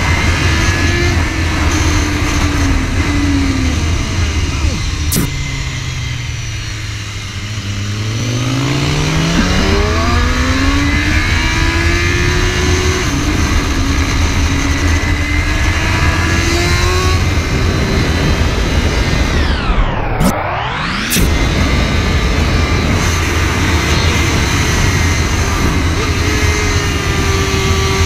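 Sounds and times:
motorcycle engine accelerating: 0:00.0 - 0:28.0
wind rumble on microphone: 0:00.0 - 0:28.0.

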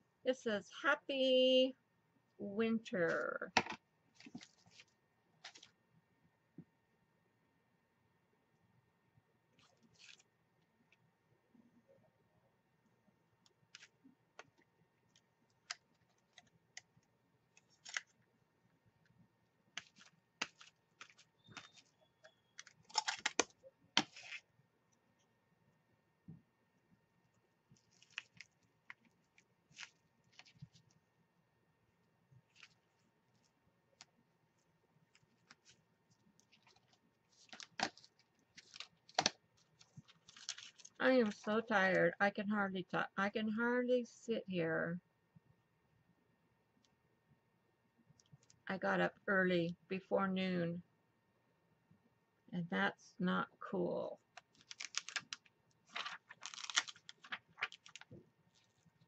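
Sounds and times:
plastic and paper crinkling: 0:03.6 - 0:05.8, 0:09.6 - 0:10.3, 0:13.6 - 0:18.2, 0:19.7 - 0:24.5, 0:27.7 - 0:31.0, 0:32.3 - 0:34.2, 0:35.1 - 0:41.6, 0:54.3 - 0:59.0.

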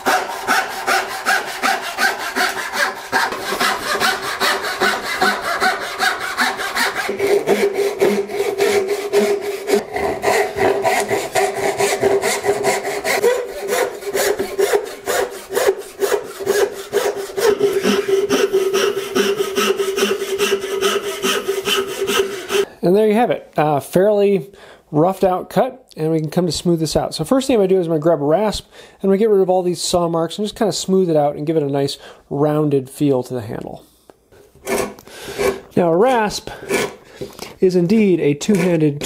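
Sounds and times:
hand saw cutting wood: 0:00.0 - 0:22.7, 0:34.6 - 0:37.5, 0:38.4 - 0:39.0.

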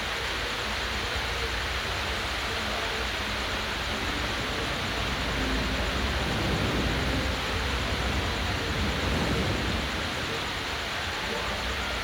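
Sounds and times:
helicopter flying low: 0:03.8 - 0:10.4.

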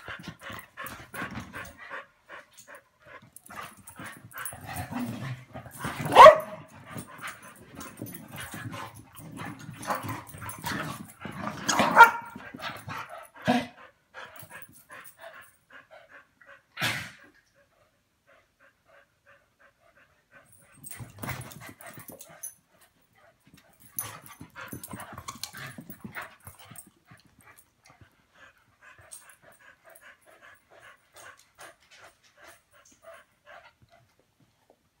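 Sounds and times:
dogs barking: 0:06.1 - 0:06.6, 0:11.8 - 0:12.4.

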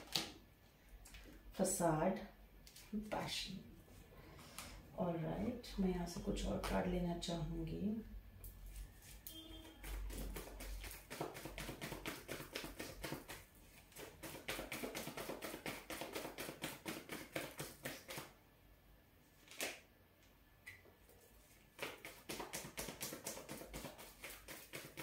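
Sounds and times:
cards being shuffled: 0:09.8 - 0:18.3, 0:19.4 - 0:19.8.

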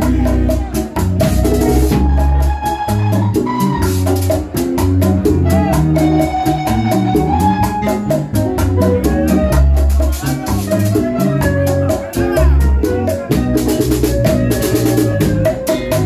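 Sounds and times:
bass line: 0:00.0 - 0:16.0
congas: 0:00.0 - 0:16.0
guitars: 0:00.0 - 0:16.0
shaken percussion: 0:00.0 - 0:16.0.

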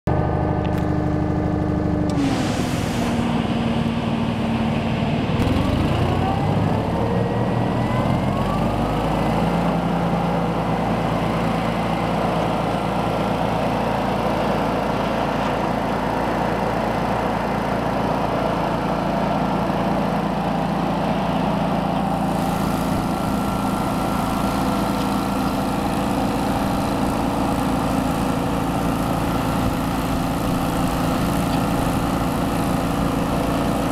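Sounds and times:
small engine running: 0:00.1 - 0:33.9
hydraulic drive whine: 0:00.2 - 0:09.4.

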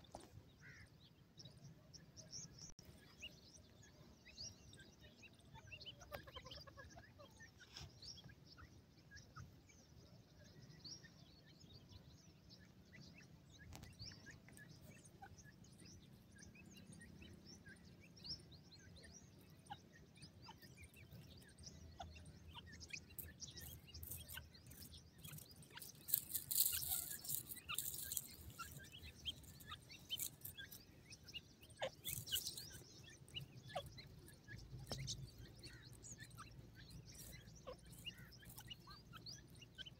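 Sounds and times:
chicks peeping: 0:04.7 - 0:09.6, 0:11.8 - 0:39.9
rustling in dry grass and sand: 0:22.2 - 0:39.9.

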